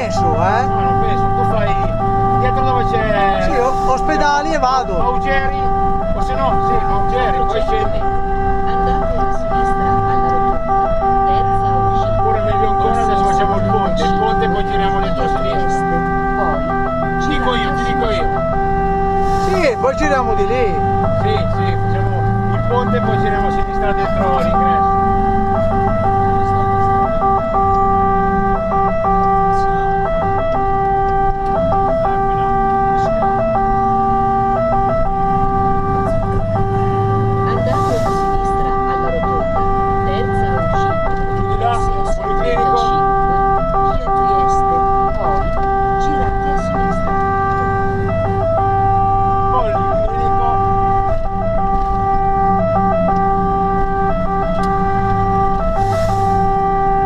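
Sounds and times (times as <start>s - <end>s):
truck engine running: 0.0s - 57.0s
two-tone fire engine siren: 0.0s - 57.0s
truck engine running under load: 50.5s - 57.0s.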